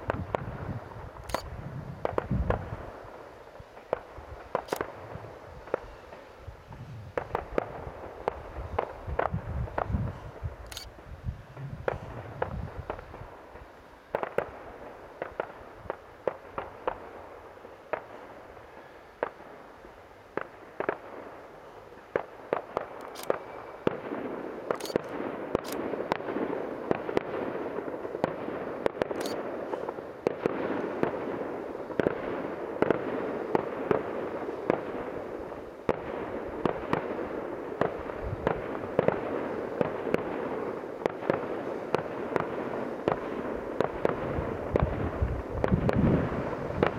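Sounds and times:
fireworks bangs and pops: 0:00.0 - 0:18.3, 0:19.2 - 0:19.6, 0:20.3 - 0:46.9.

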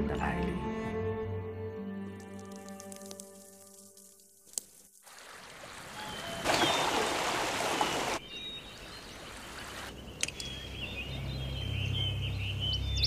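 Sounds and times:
stream running over pebbles: 0:02.1 - 0:09.9.

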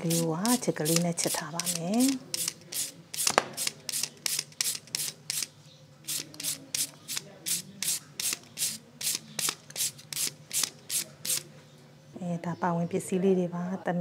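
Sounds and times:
carrot scraping on grater: 0:00.0 - 0:02.9.

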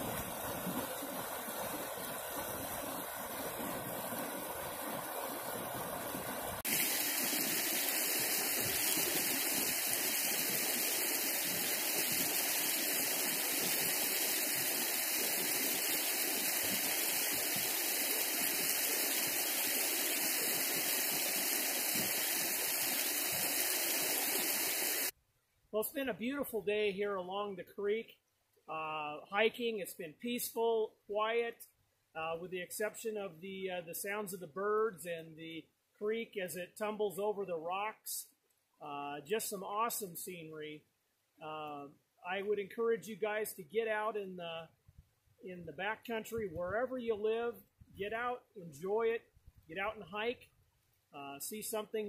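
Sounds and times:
creek water rushing over rocks: 0:00.0 - 0:25.1.

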